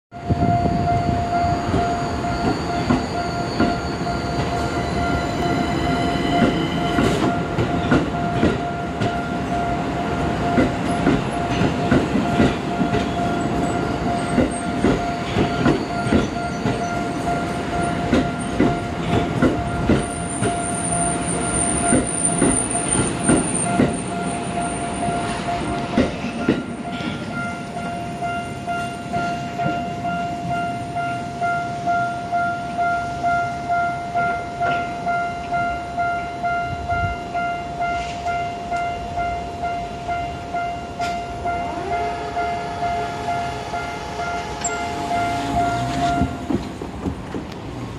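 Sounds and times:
crossing warning alarm tone: 0.1s - 46.7s
high wheel squeal: 0.4s - 7.3s, 13.1s - 18.5s
train wheels clacking on rail joints: 6.3s - 9.4s, 10.4s - 27.6s, 44.2s - 47.9s.

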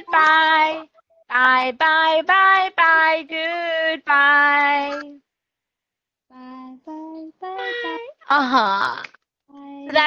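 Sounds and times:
high voice singing unaccompanied: 0.0s - 5.2s, 6.3s - 8.2s, 9.5s - 10.0s.

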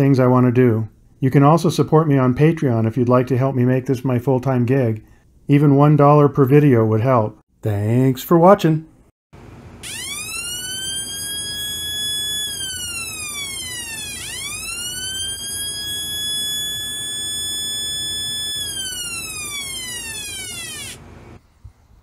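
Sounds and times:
electronic siren tone: 9.8s - 21.4s.

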